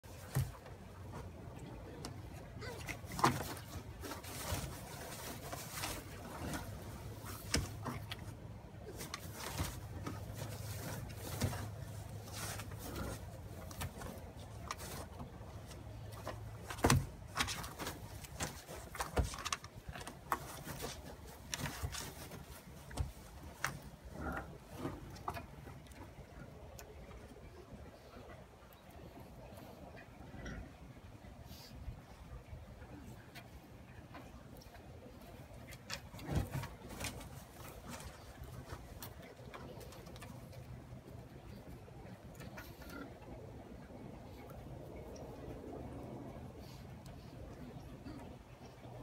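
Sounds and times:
animal rustling in bedding: 3.0s - 23.8s.

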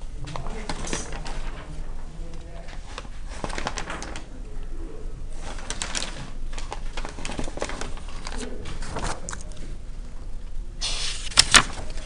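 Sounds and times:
pens clicking and paper rustling: 0.3s - 4.3s, 5.4s - 9.6s, 10.8s - 12.0s.

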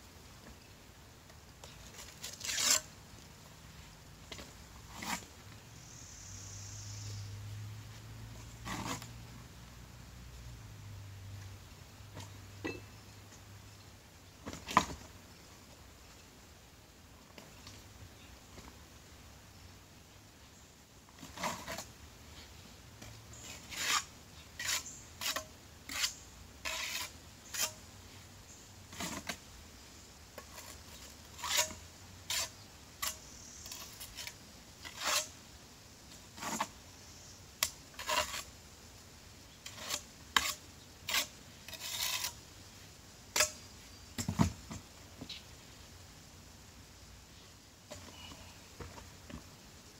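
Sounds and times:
trowel scraping mortar: 1.8s - 2.9s, 23.4s - 27.8s, 28.9s - 29.4s, 30.4s - 35.3s, 36.4s - 36.8s, 37.9s - 38.5s, 39.6s - 42.4s.

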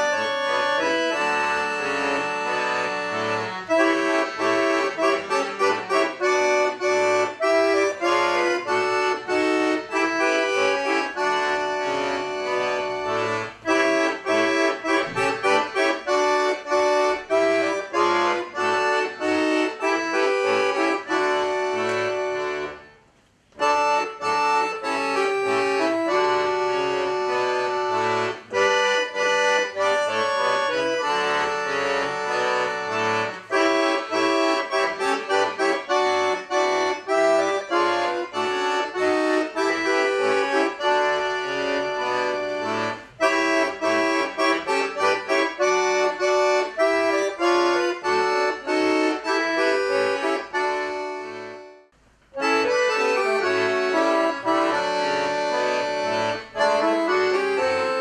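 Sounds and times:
accordion ensemble playing chords: 0.0s - 58.0s.

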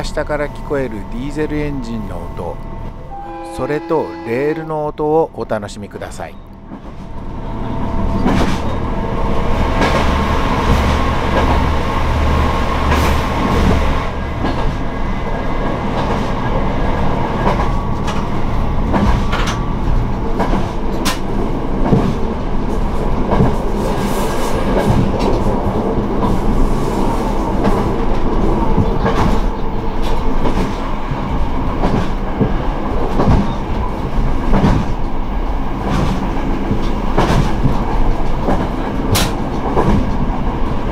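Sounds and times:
wheels rumbling on rails: 0.0s - 40.9s
clacks over rail joints: 8.2s - 8.8s, 12.9s - 14.9s, 15.9s - 25.6s, 27.6s - 40.8s.

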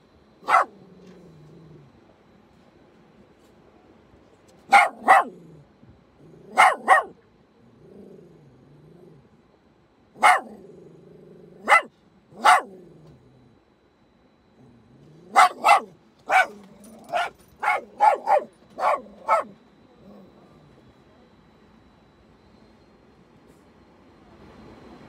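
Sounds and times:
small dog barking: 0.4s - 1.2s, 4.6s - 5.5s, 6.4s - 7.2s, 10.2s - 10.7s, 11.6s - 13.0s, 15.2s - 19.6s.

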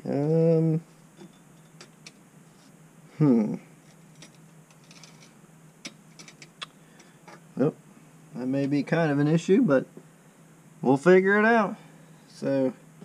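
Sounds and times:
person humming hmm: 0.0s - 0.8s, 3.1s - 3.7s
steady low hum: 0.0s - 13.0s
metal parts clicking: 3.9s - 6.6s.

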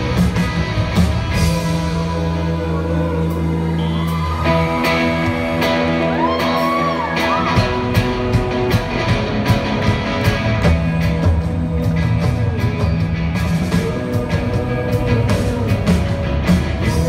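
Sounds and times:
drums hitting hard: 0.0s - 2.4s
live rock band playing: 0.0s - 17.0s.

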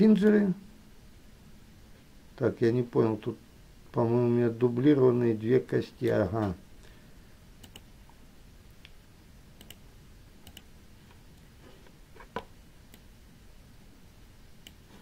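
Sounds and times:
computer mouse clicks: 7.6s - 7.9s, 9.6s - 9.8s, 10.4s - 10.7s, 14.6s - 14.8s.

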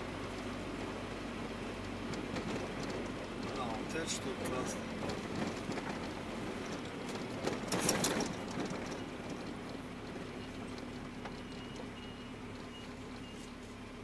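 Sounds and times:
road noise: 0.0s - 14.0s
van engine drone: 0.0s - 14.0s
rattles and knocks: 1.8s - 11.9s.

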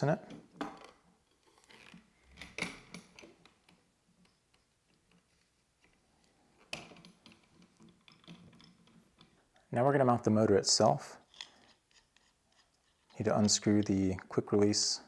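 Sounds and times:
metal hardware clicks and knocks: 6.6s - 9.4s.

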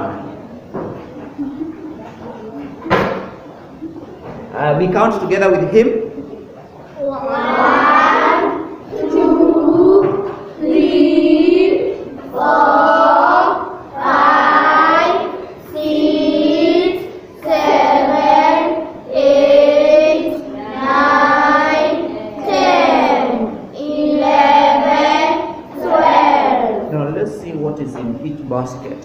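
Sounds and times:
children counting aloud in unison: 7.0s - 26.9s.

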